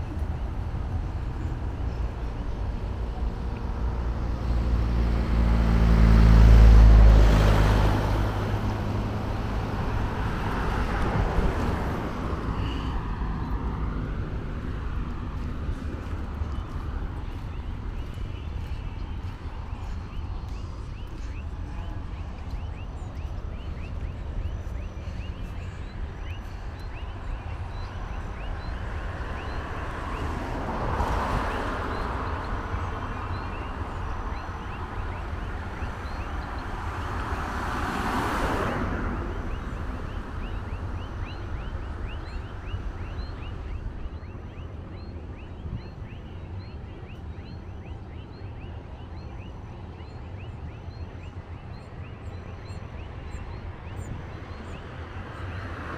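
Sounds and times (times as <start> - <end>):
vehicles passing on road: 0.0 - 55.9
steady low rumble: 8.2 - 29.8.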